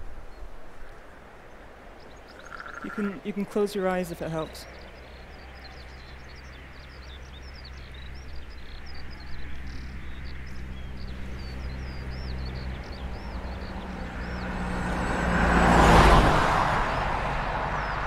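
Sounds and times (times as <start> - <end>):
road vehicle approaching: 0.8 - 18.0
small birds chirping and whistling: 2.0 - 14.5.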